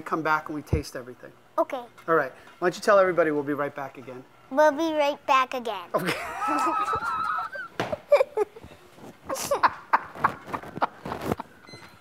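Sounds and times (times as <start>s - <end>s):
man laughing: 6.0s - 8.6s, 9.3s - 11.0s
girl laughing: 6.0s - 11.1s.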